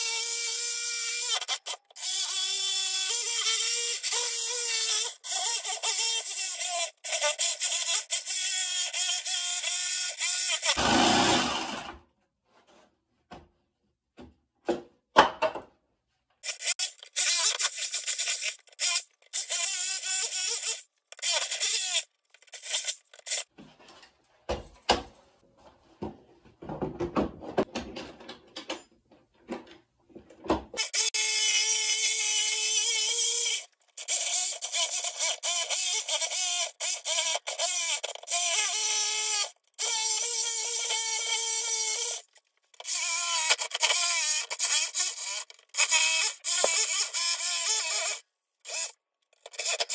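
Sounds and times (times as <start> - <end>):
power tool humming: 10.3 - 11.9.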